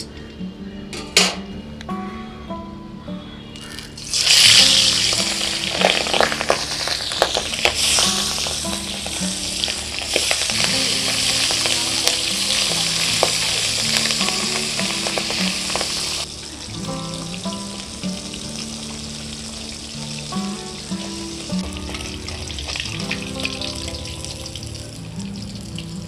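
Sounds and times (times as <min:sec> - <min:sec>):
oil crackling and spattering: 0:03.6 - 0:16.3, 0:17.5 - 0:25.0
fish sizzling in hot oil: 0:03.6 - 0:26.0.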